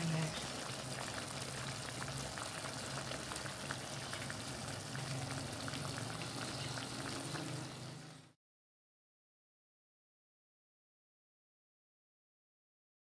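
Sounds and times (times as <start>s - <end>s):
sauce bubbling and sizzling in a pan: 0.0s - 8.4s.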